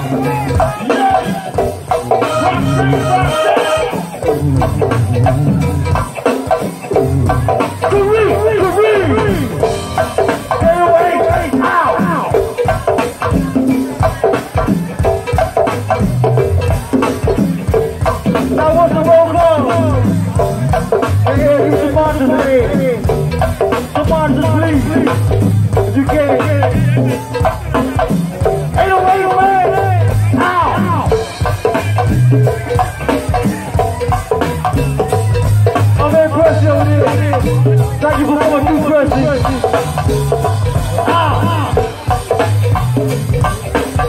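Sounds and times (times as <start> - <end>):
horns: 0.0 - 6.0
vocals: 0.0 - 6.1, 7.1 - 15.0, 18.3 - 27.8, 28.6 - 34.0, 35.8 - 42.5
bass line: 0.0 - 44.0
drums and percussion: 0.0 - 44.0
live band playing loudly: 0.0 - 44.0.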